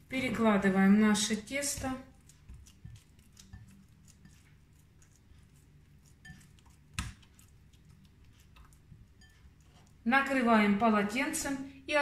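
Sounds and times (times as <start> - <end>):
hands handling dough: 1.2 - 10.0.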